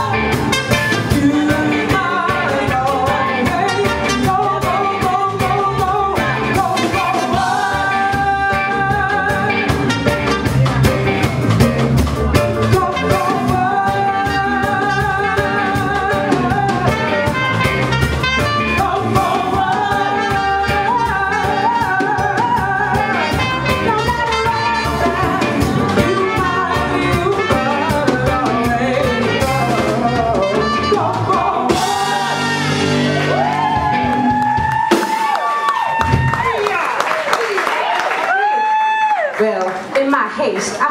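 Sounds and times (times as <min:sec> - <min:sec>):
woman singing: 0:00.0 - 0:11.0, 0:12.4 - 0:32.7
reggae band playing: 0:00.0 - 0:39.0.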